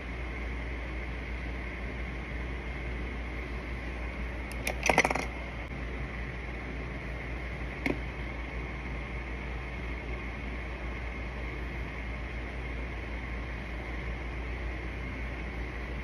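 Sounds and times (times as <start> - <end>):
background hum and hiss: 0.0 - 16.0
makeup items clicking: 4.5 - 5.3.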